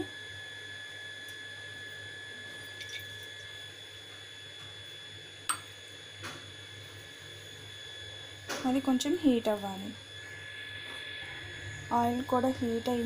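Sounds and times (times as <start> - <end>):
faint high whine: 6.7 - 13.0.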